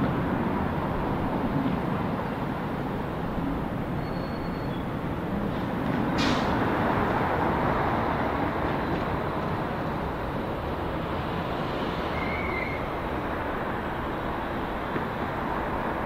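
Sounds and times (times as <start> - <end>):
jet engine rumble: 0.0 - 16.0
brief hiss: 6.2 - 6.6.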